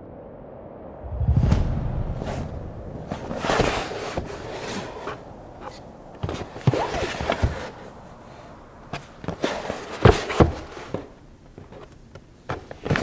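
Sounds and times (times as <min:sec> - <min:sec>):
cardboard box rubbing and scuffing: 0:03.0 - 0:08.0, 0:09.0 - 0:11.2.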